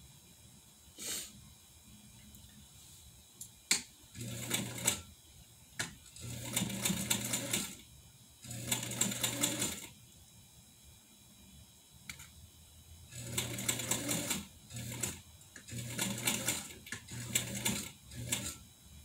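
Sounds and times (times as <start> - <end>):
sewing machine stitching: 4.2 - 5.1, 6.2 - 7.8, 8.4 - 9.9, 13.2 - 18.6.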